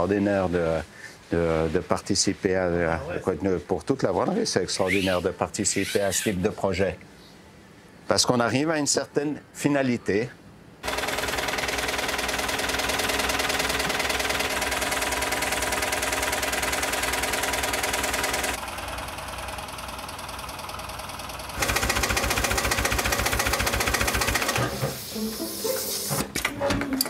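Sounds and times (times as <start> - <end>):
sewing machine clattering: 10.8 - 18.6, 21.6 - 24.8.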